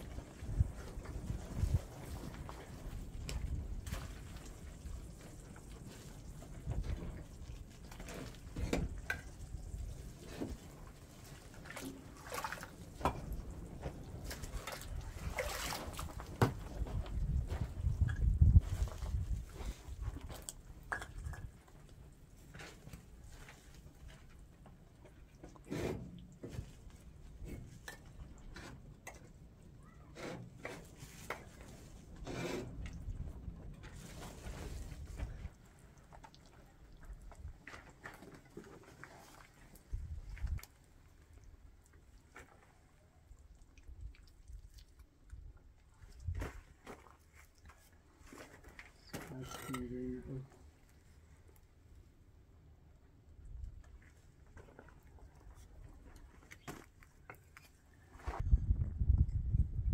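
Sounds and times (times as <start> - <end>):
water sloshing in basin: 10.5 - 17.0, 33.9 - 51.2.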